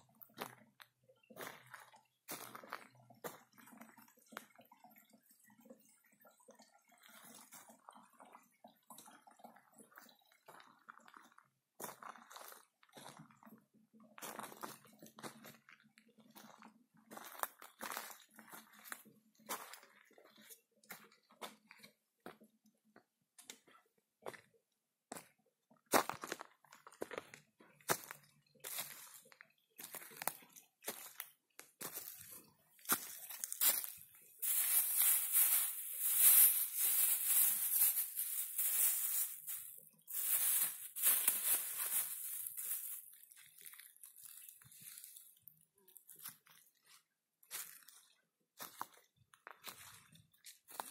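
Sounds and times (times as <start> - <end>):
footsteps crunching on dry leaves: 32.9 - 45.2
plastic bag crinkling: 34.4 - 43.2.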